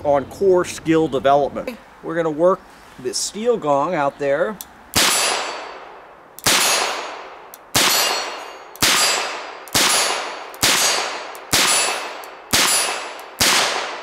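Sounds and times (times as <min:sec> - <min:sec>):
steel plate clanging: 0:07.8 - 0:13.2.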